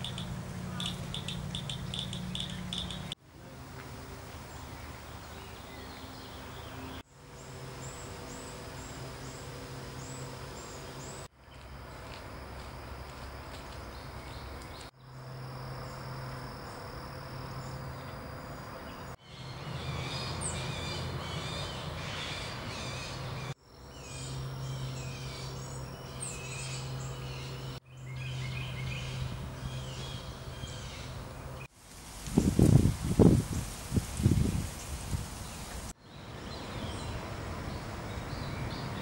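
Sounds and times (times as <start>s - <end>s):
birds chirping and calling: 0.0s - 3.2s
low outdoor hum: 0.0s - 39.0s.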